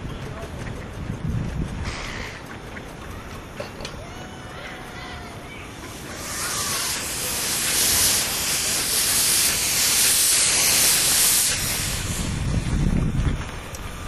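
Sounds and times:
steam locomotive releasing steam: 4.0 - 14.0.

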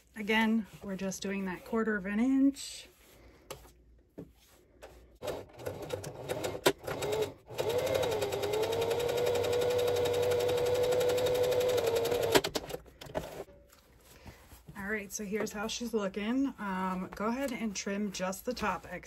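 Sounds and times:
sewing machine stitching: 5.2 - 13.4.

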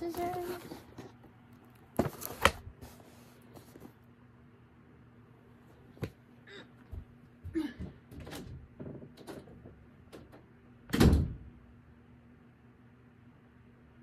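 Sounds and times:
door shutting with heavy thump: 10.9 - 11.5.

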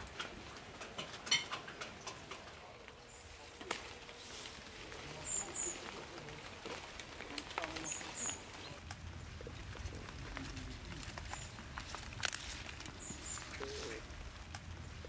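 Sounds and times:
plants clicking and rustling: 0.0 - 15.0
small bird chirping: 5.0 - 6.4, 7.6 - 9.4, 12.4 - 14.0.

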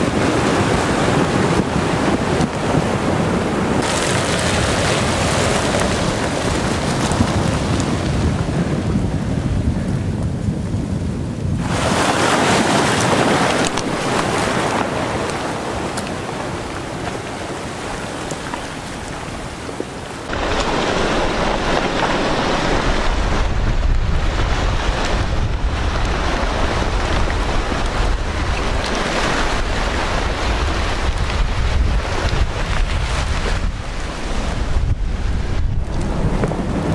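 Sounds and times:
wind buffeting microphone: 0.0 - 36.9
debris flow rushing: 3.7 - 8.4, 11.6 - 34.8.

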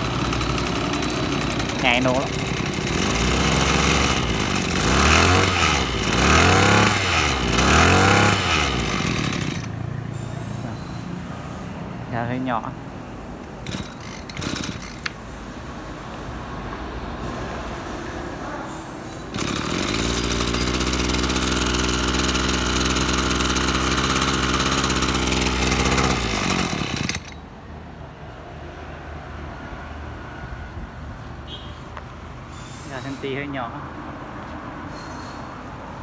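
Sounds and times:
brush cutter engine revving: 0.0 - 9.8, 13.6 - 15.2, 19.3 - 27.4.

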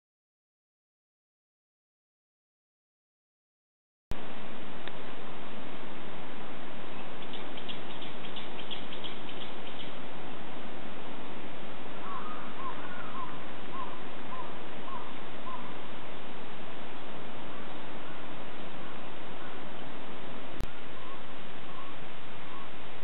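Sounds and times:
steady outdoor noise: 4.1 - 23.0
small birds twittering: 6.9 - 10.1, 11.9 - 15.9, 20.7 - 23.0
crow cawing: 12.0 - 14.0.

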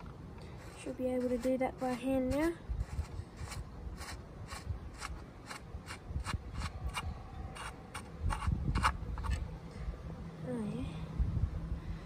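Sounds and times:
gritty metal scrapes and clicks: 0.0 - 9.4.

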